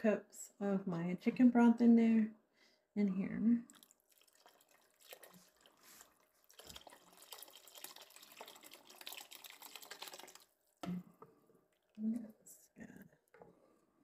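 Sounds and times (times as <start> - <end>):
broth pouring into pot: 3.7 - 10.8.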